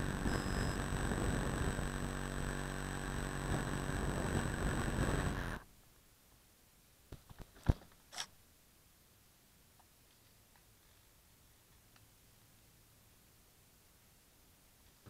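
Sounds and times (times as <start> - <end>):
engine-like hum: 0.0 - 5.6.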